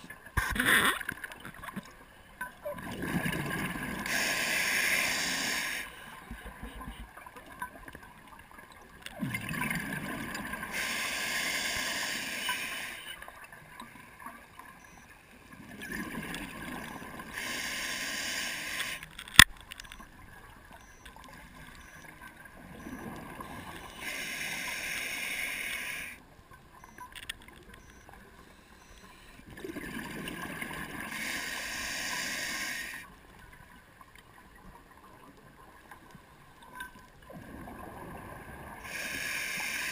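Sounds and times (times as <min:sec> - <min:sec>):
regulator bubbles underwater: 0:00.0 - 0:04.3, 0:05.5 - 0:11.0, 0:13.2 - 0:17.5, 0:20.0 - 0:24.1, 0:27.6 - 0:31.4, 0:32.9 - 0:39.3
diver breathing: 0:04.0 - 0:06.2, 0:10.7 - 0:13.2, 0:17.3 - 0:19.0, 0:23.6 - 0:26.2, 0:31.1 - 0:33.1, 0:38.8 - 0:39.9.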